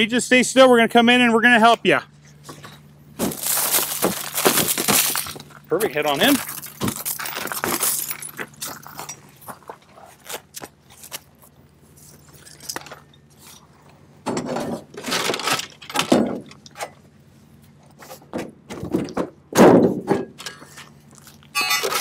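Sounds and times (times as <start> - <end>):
low steady hum: 0.0 - 22.0
metallic clanks rattles and scrapes: 2.3 - 10.3, 12.0 - 17.1, 17.8 - 22.0.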